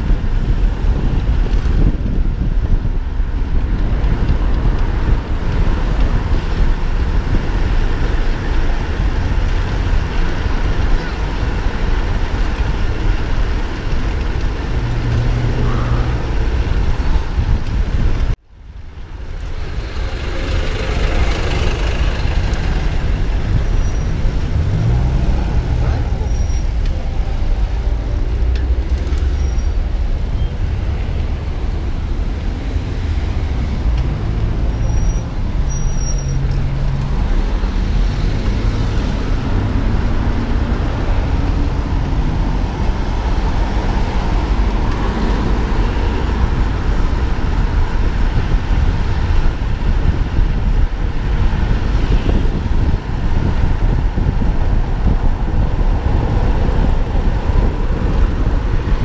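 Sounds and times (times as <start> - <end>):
road traffic: 0.0 - 59.0
wind rumble on microphone: 0.0 - 59.0
vehicle engine passing: 19.9 - 26.3.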